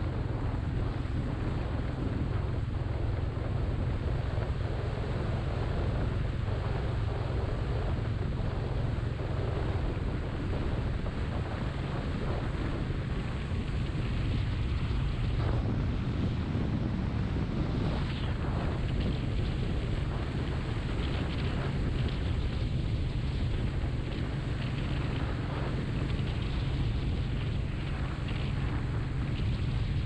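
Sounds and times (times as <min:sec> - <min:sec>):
motorcycle engine rumble: 0:00.0 - 0:30.0
wind rushing over microphone: 0:00.0 - 0:30.0.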